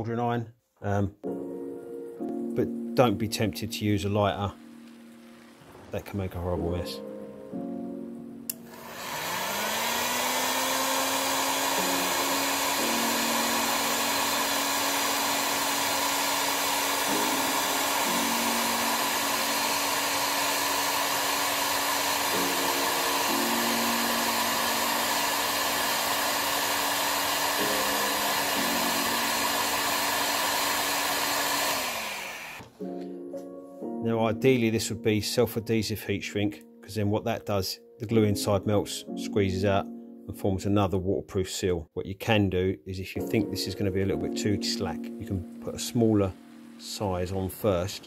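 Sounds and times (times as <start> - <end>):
heat gun fan whining and hissing: 8.5 - 32.7.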